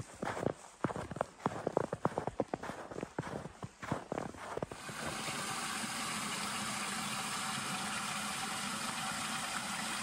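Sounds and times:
footsteps crunching in snow: 0:00.0 - 0:05.3.

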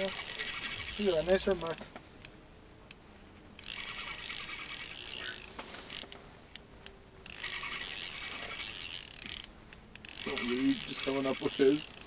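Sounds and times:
fishing reel whirring rattle: 0:00.0 - 0:01.8, 0:03.6 - 0:06.2, 0:07.2 - 0:12.0.

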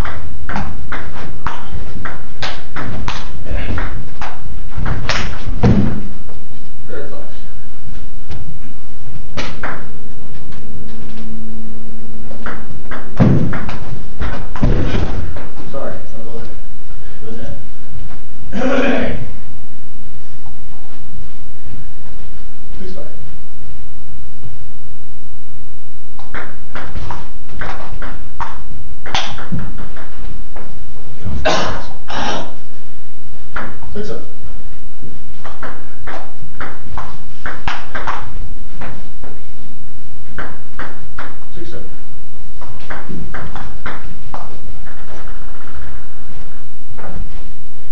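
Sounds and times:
heavy thud: 0:01.6 - 0:06.3, 0:12.5 - 0:15.6.

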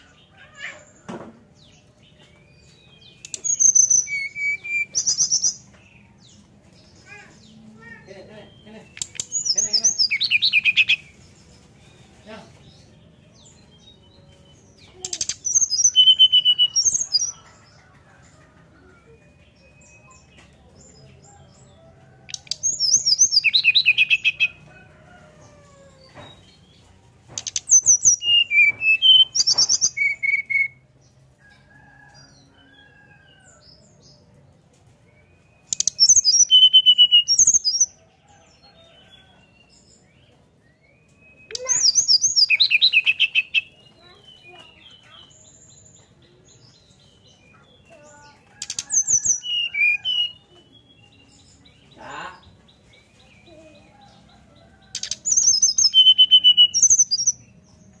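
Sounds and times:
bird whistled song: 0:03.1 - 0:05.6, 0:15.3 - 0:17.2, 0:27.5 - 0:30.8, 0:35.4 - 0:37.8, 0:54.9 - 0:57.4.

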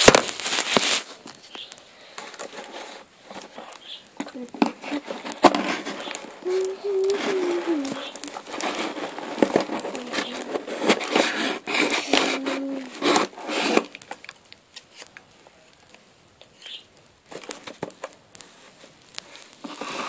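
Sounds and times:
cardboard and tape tearing: 0:00.0 - 0:15.2, 0:16.5 - 0:20.0.

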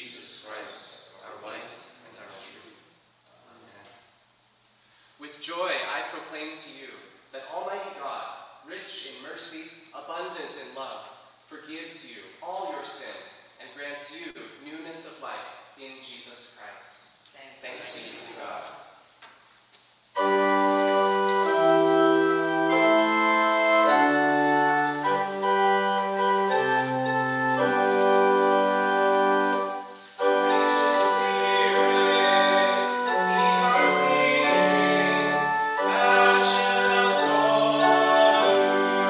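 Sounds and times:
pipe organ playing hymn chords: 0:20.2 - 0:39.0
voices singing: 0:30.2 - 0:39.0.

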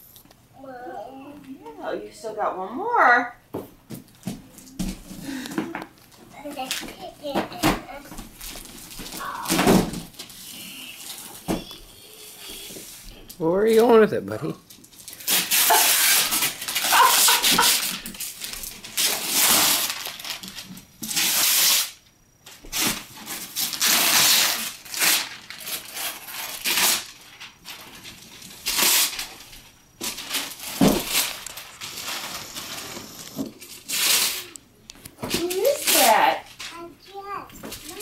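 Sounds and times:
wrapping paper tearing and crumpling: 0:07.9 - 0:11.4, 0:14.7 - 0:22.0, 0:22.7 - 0:34.6, 0:35.3 - 0:36.9, 0:37.8 - 0:38.0.

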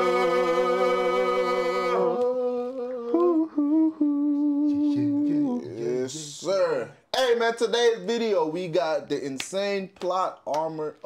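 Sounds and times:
men singing a cappella: 0:00.0 - 0:06.4.

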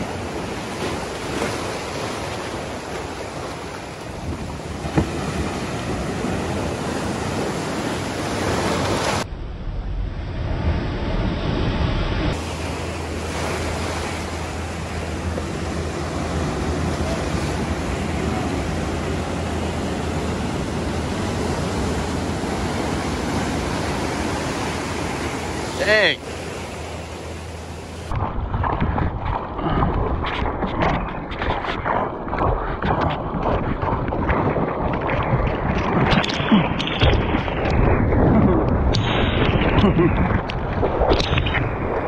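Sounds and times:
waves crashing on rocks: 0:00.0 - 0:09.3, 0:12.3 - 0:29.4
whitewater washing over rocky beach: 0:12.4 - 0:27.1.

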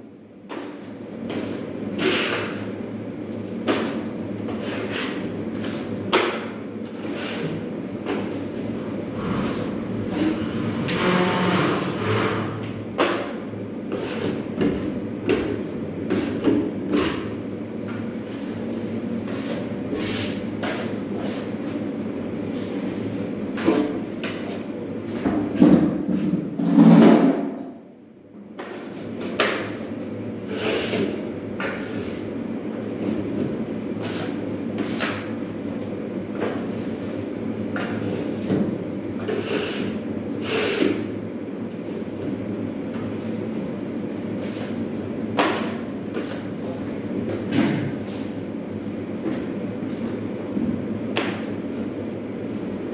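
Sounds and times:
steady low hum: 0:00.0 - 0:26.6
hand tool scraping wall: 0:00.5 - 0:02.6, 0:03.6 - 0:17.4, 0:39.2 - 0:41.0.

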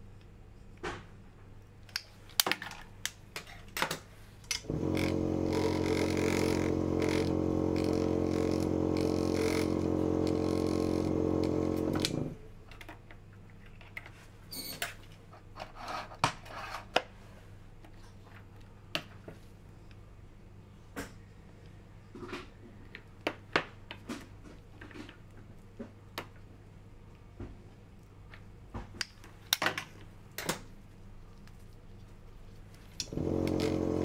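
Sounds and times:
vortex mixer motor humming: 0:04.6 - 0:12.4, 0:33.0 - 0:34.0.

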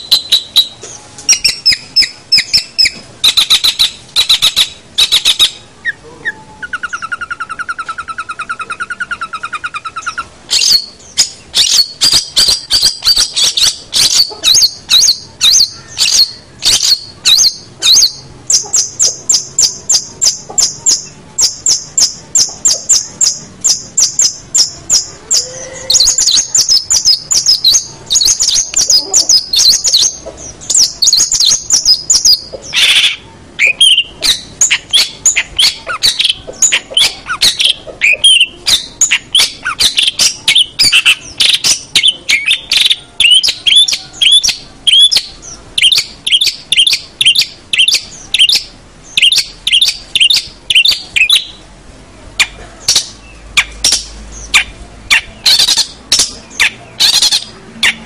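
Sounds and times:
shrike singing chattering notes: 0:06.6 - 0:51.7.

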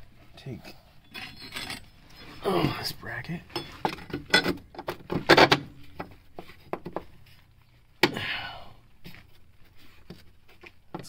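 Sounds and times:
metal bracket clanking and scraping: 0:01.0 - 0:02.8, 0:03.4 - 0:06.1.

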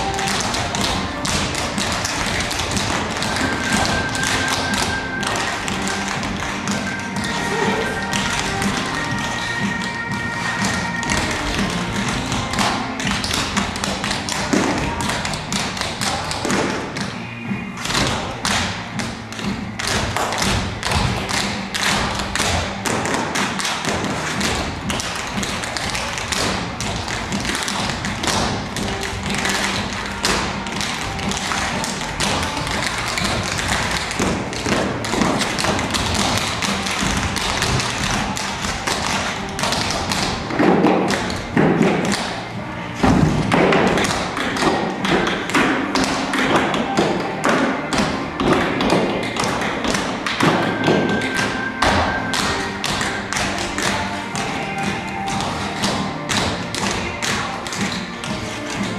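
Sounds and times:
feet stomping on stage floor: 0:17.9 - 0:42.3.

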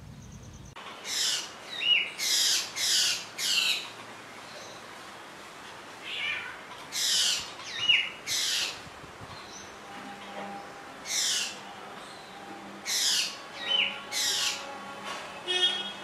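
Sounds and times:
bird harsh rasping calls: 0:01.0 - 0:03.9, 0:06.9 - 0:08.8, 0:11.0 - 0:14.8.

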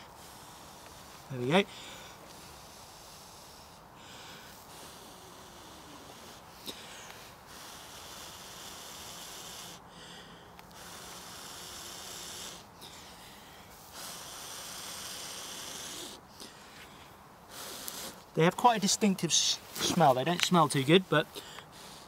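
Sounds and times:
person blowing hard: 0:00.0 - 0:10.1, 0:10.7 - 0:13.0, 0:13.8 - 0:16.2, 0:17.5 - 0:18.2.

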